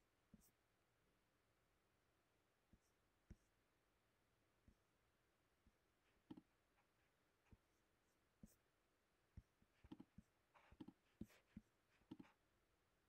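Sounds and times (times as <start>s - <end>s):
computer mouse clicks: 9.8s - 11.0s, 12.0s - 12.4s.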